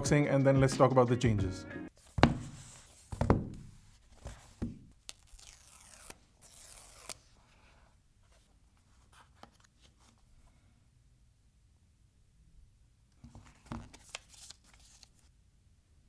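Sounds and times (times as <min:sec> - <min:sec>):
knocks of box handling: 0:02.2 - 0:03.7
paper seal strips tearing: 0:05.1 - 0:07.2
faint packaging rustling: 0:13.2 - 0:15.3.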